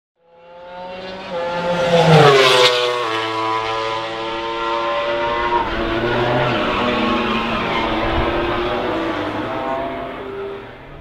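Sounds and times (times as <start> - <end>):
racing motorcycle engine passing: 0.3 - 11.0.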